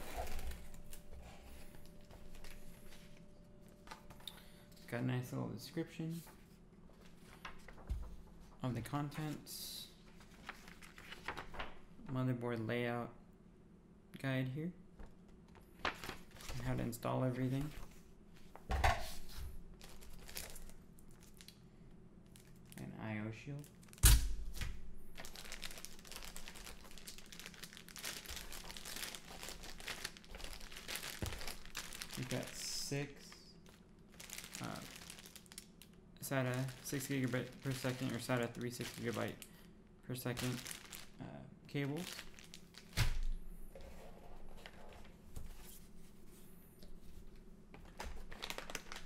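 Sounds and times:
plastic bags crinkling: 19.8s - 21.6s, 25.1s - 32.9s, 33.6s - 39.5s, 40.2s - 41.2s, 41.8s - 43.3s, 47.8s - 49.0s.

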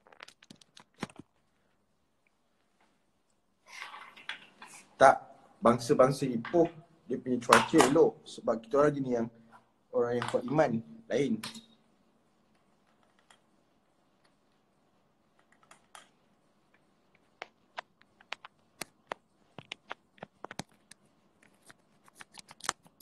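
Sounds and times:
fingers tapping on a touchscreen: 17.2s - 21.0s.

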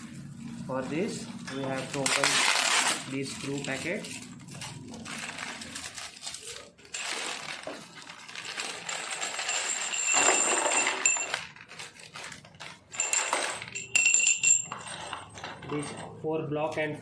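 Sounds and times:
plastic packet crinkling: 1.8s - 9.5s, 11.3s - 13.0s
metal hardware clinking into box: 8.7s - 11.5s.

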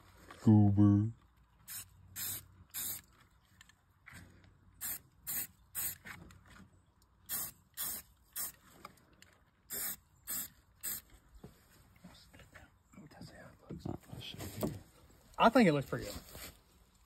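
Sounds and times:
spray paint can hissing: 1.6s - 3.0s, 4.8s - 6.0s, 7.3s - 8.6s, 9.7s - 11.1s.

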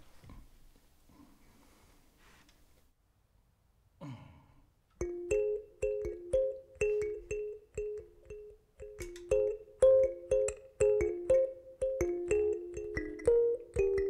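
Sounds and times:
kalimba notes: 5.0s - 14.0s.

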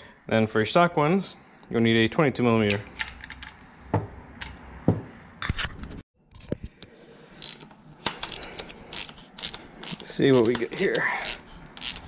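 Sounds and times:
ratchet clicking: 7.4s - 12.0s.

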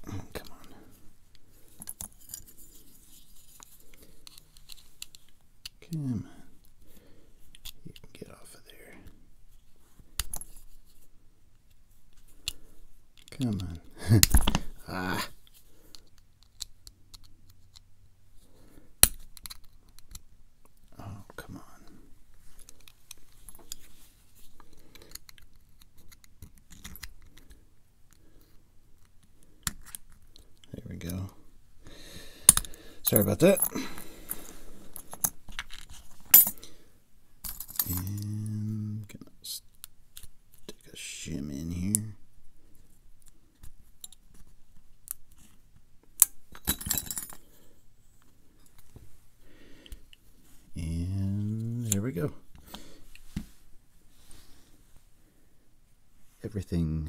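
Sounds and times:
metallic clicks and scrapes on lock: 19.0s - 20.3s, 28.4s - 31.2s.

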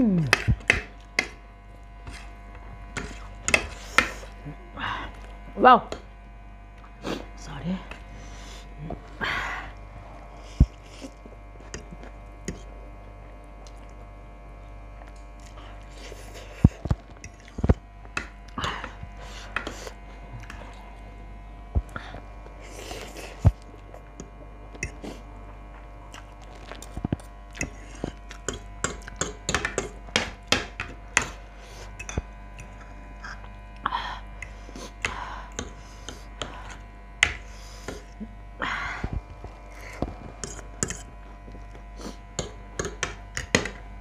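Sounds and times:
cutlery scraping a plate: 39.9s - 41.1s.

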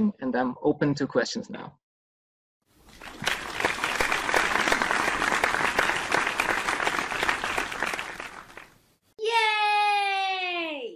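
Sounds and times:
crowd clapping: 2.8s - 8.8s.

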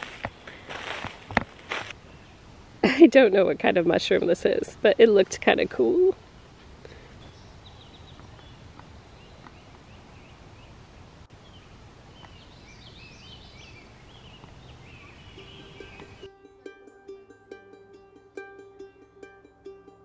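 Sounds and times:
low background noise: 0.0s - 20.0s
small birds chirping: 5.4s - 16.3s.

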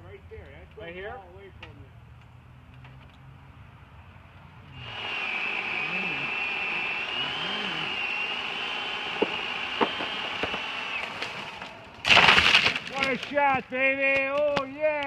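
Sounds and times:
chainsaw cutting wood: 4.7s - 13.4s
short sharp cracks: 7.9s - 14.7s.

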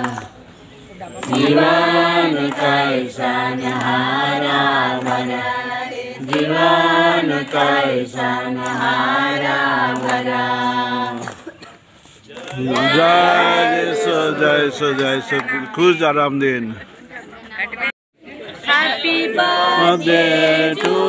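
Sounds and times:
group singing devotional song: 0.0s - 0.4s, 1.2s - 11.8s, 12.5s - 15.4s, 18.6s - 21.0s.

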